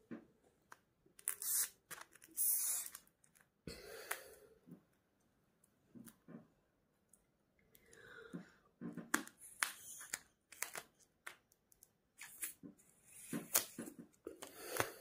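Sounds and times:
sticky tape crackling and clicking: 1.2s - 3.5s, 9.1s - 12.6s.

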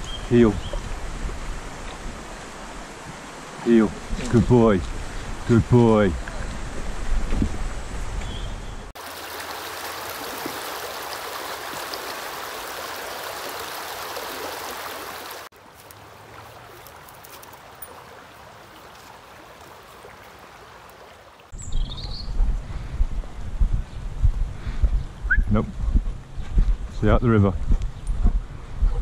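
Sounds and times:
stream rushing over stones: 9.0s - 21.6s.

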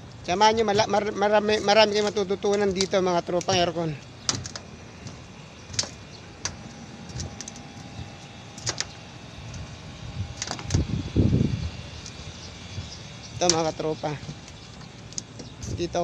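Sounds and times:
footsteps on sheet-metal roof: 0.0s - 9.7s.

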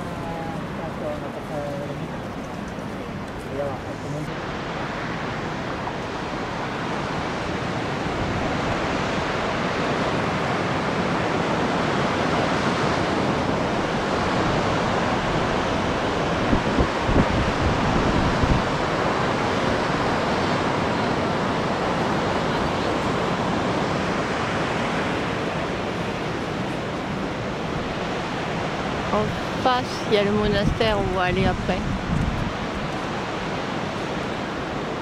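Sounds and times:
wind roaring on microphone: 0.0s - 35.0s
gusts thumping the mic: 29.6s - 32.8s.

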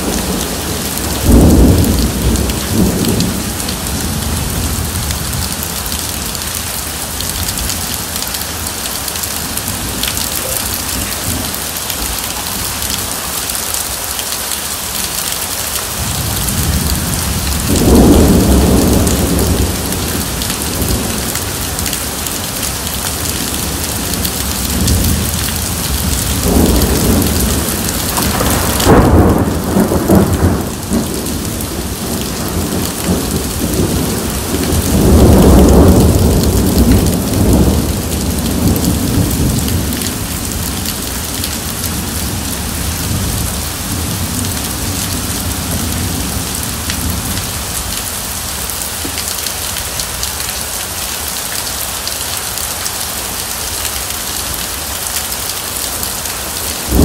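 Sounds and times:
rolling thunder: 0.0s - 6.4s, 15.9s - 22.5s, 23.2s - 47.6s
heavy rain on wet ground: 0.0s - 57.0s.

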